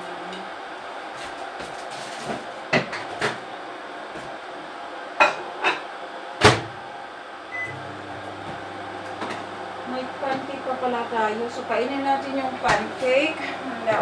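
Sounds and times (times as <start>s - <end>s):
microwave humming: 0.0s - 14.0s
microwave beep: 7.5s - 8.0s.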